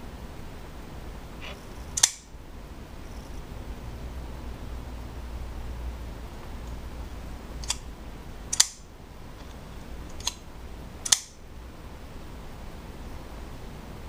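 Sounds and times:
knife blade closing click: 2.0 - 2.2, 8.5 - 8.8, 11.1 - 11.4
knife flipping open snap: 2.0 - 2.3, 8.5 - 8.8, 11.0 - 11.4.

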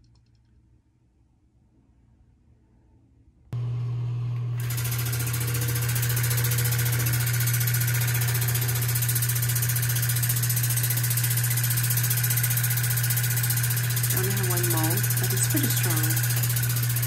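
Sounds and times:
water flosser motor hum: 3.6 - 17.0.

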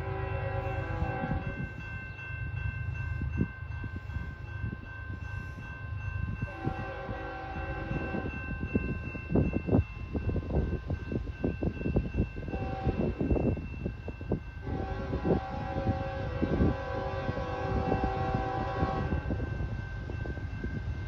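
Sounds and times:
distant train air horn: 0.0 - 1.7, 6.5 - 8.4, 12.5 - 13.2, 14.6 - 19.4
wind buffeting microphone: 0.0 - 21.0.

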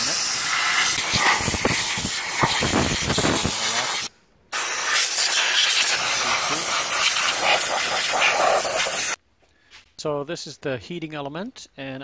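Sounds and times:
compressed air blow gun hissing: 0.0 - 9.2.

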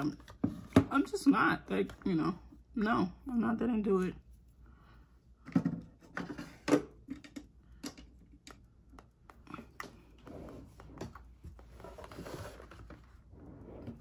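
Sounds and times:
small clicks and taps of makeup items: 7.0 - 10.0
soft rustling: 9.0 - 14.0.

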